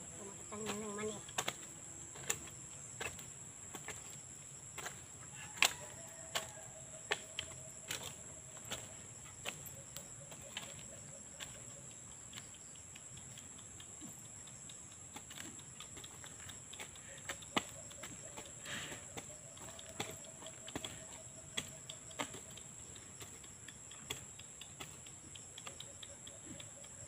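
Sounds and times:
hoe chopping into soil: 0:00.6 - 0:09.7, 0:16.8 - 0:21.0, 0:21.6 - 0:22.6.

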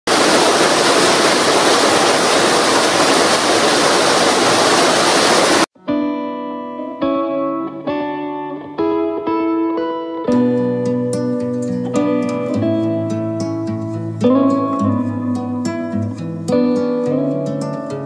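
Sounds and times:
waterfall rushing: 0:00.1 - 0:05.7
plucked guitar music: 0:05.8 - 0:18.0.

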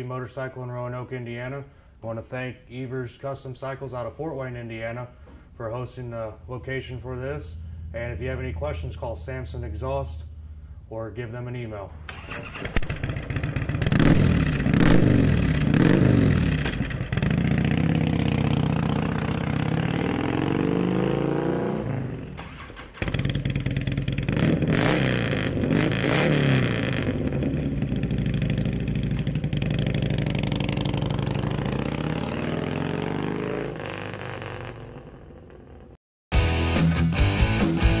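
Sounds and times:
motorcycle engines revving: 0:12.1 - 0:35.9
motorcycle riding away: 0:12.1 - 0:36.0.

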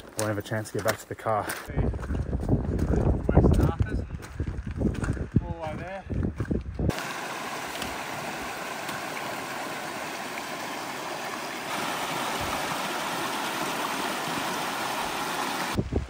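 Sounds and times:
creek water flowing: 0:06.9 - 0:15.8.

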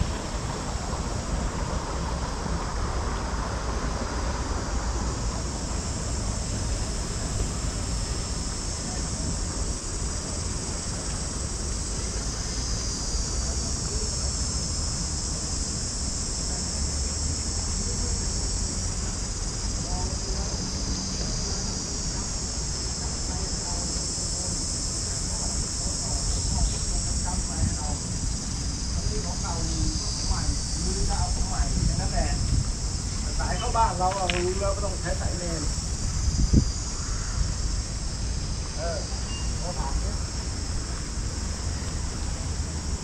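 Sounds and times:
insects chorus: 0:00.0 - 0:43.0
wind rumble on microphone: 0:24.2 - 0:38.8.

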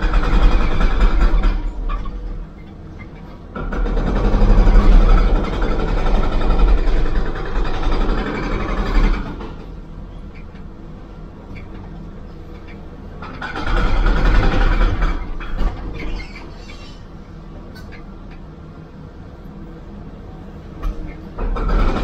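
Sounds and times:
excavator engine and hydraulics: 0:00.0 - 0:22.0.

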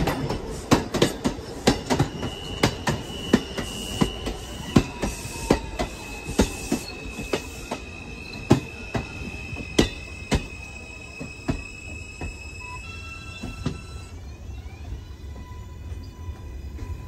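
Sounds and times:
train wheels clicking over rail joints: 0:00.0 - 0:12.6.

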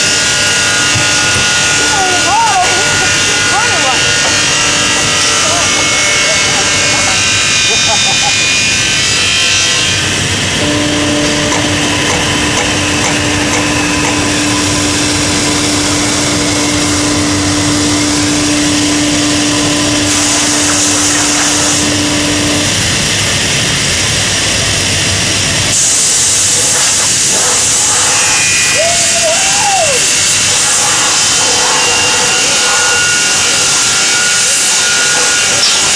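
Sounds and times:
short wavering whine: 0:00.0 - 0:24.8
casting machine noise: 0:00.0 - 0:35.9
steady machine tone: 0:00.0 - 0:35.9
hissing bursts: 0:25.7 - 0:35.9.

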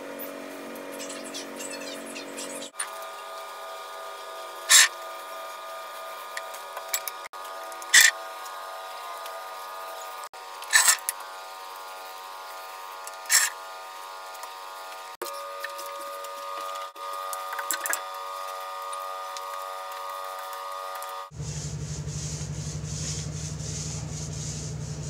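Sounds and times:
steady background hum: 0:00.0 - 0:25.0
paint roller wet swishes: 0:17.5 - 0:25.0.

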